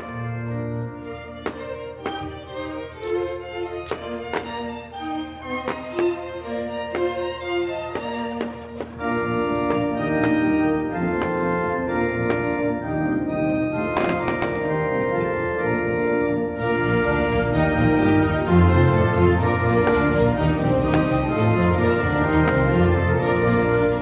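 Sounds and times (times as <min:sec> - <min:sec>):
organ-like sustained chords: 0:00.0 - 0:24.0.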